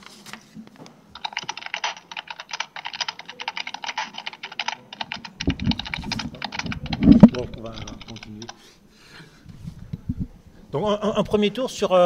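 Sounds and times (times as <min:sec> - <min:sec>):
fast keyboard typing: 0:01.2 - 0:08.6.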